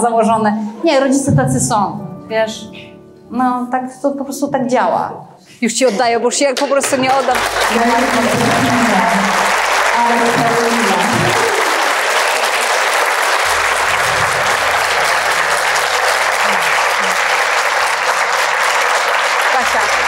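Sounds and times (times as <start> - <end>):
audience applauding: 6.8 - 20.0.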